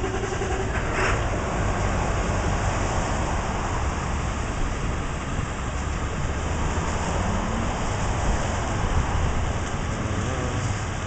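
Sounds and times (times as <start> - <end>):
rain on pavement and vehicles: 0.1 - 11.0.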